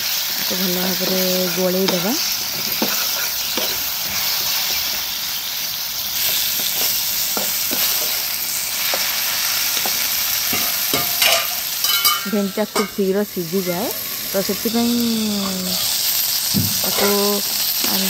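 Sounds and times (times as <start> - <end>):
okra sizzling in hot oil: 0.0 - 18.0
spatula scraping pan: 1.0 - 4.9, 16.8 - 18.0.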